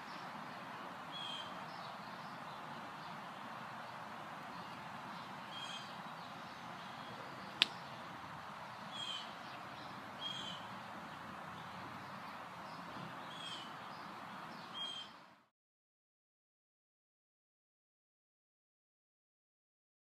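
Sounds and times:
outdoor background hiss: 0.0s - 15.5s
bird chirping: 1.1s - 15.2s.

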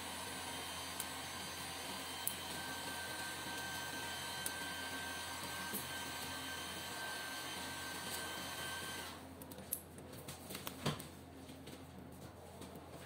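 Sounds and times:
machine hum with hiss: 0.0s - 9.3s.

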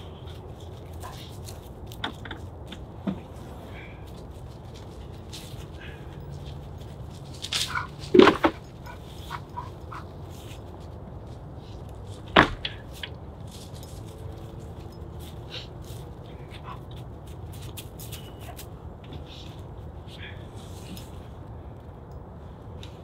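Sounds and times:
logs knocking on woodpile: 8.1s - 8.6s, 12.3s - 12.8s.

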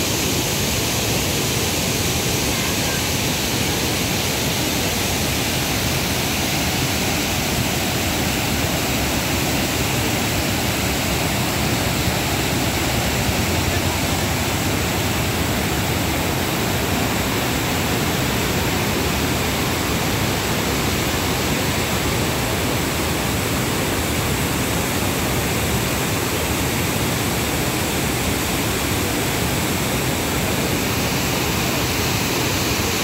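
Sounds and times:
water rushing over spillway: 0.0s - 33.0s.

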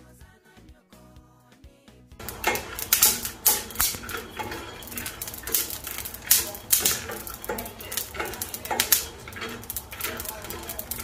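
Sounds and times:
seeds rattling in a metal pan: 2.2s - 11.0s.

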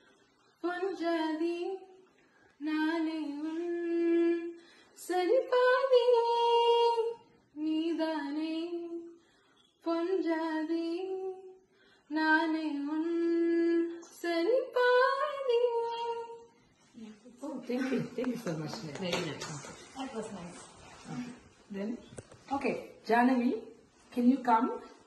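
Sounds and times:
girl singing unaccompanied: 2.6s - 9.2s, 9.8s - 16.6s.

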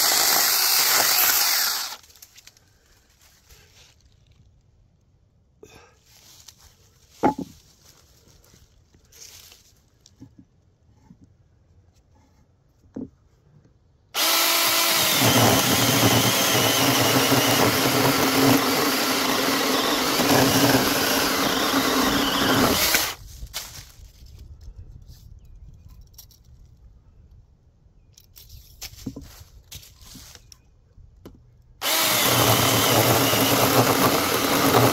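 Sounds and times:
chainsaw cutting wood: 0.0s - 2.1s, 14.2s - 23.2s, 31.8s - 34.9s.

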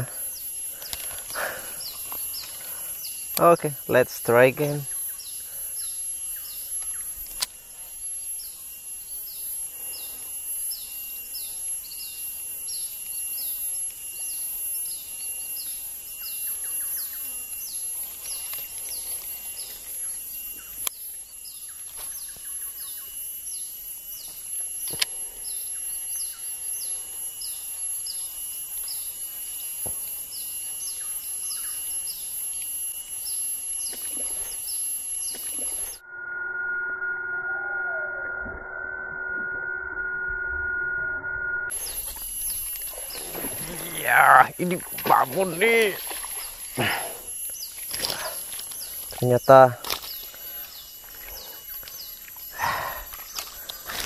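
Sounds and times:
steady high-pitched whine: 0.0s - 54.0s
high falling chirps: 30.1s - 53.9s.

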